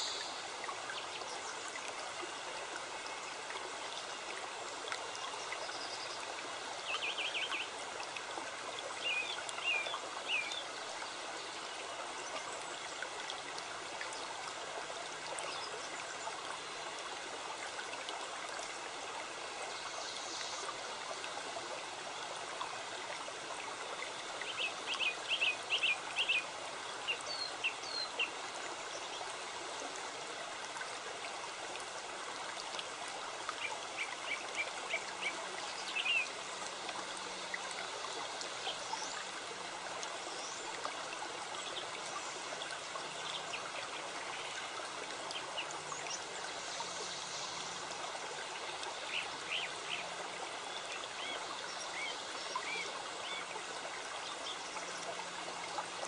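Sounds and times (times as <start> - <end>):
creek running: 0.0 - 56.0.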